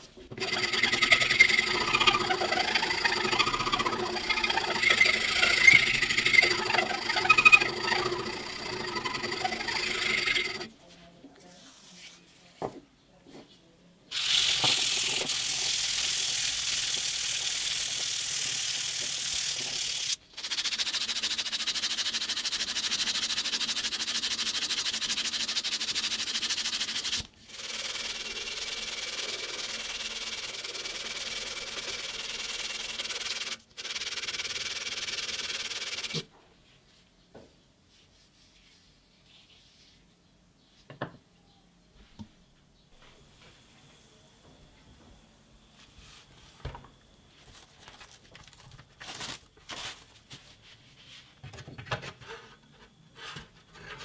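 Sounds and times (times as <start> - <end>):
sandpaper scraping spinning wood: 0.0 - 10.7, 14.1 - 36.2.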